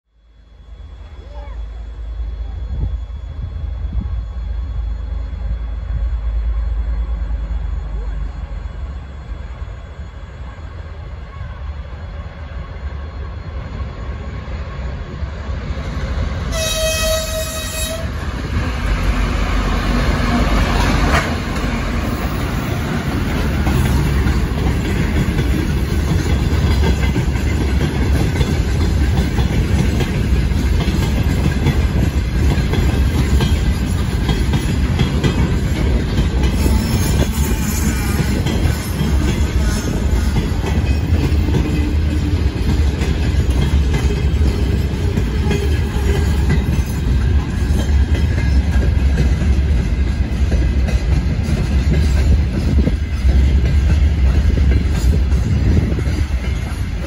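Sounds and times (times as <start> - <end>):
diesel locomotive engines passing: 0.1 - 57.0
locomotive horn blast: 16.5 - 18.1
freight wagons rumbling and clacking: 20.7 - 57.0.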